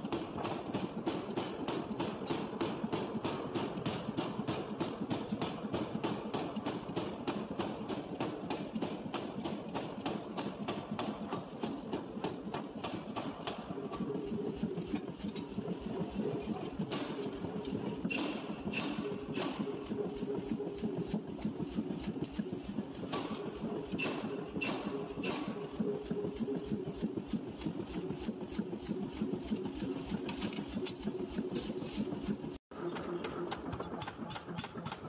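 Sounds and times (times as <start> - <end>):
hammer striking hot steel: 0.1 - 20.8, 21.4 - 26.3.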